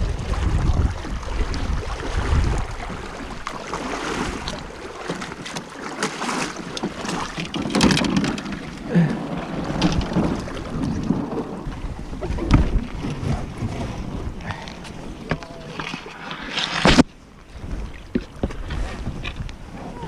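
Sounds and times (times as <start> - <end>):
wind on microphone: 0.0 - 4.9, 7.2 - 20.0.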